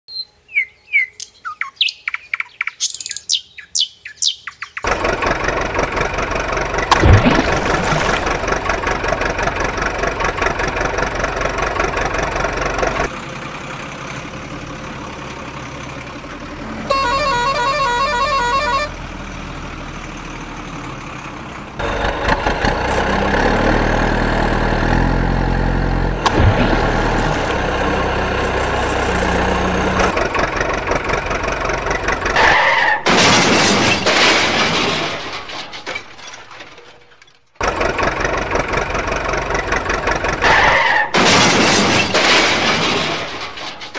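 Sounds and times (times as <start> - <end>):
birds chirping: 0.1 - 4.9
truck engine running: 4.8 - 36.2, 37.5 - 43.9
horn: 16.9 - 19.0.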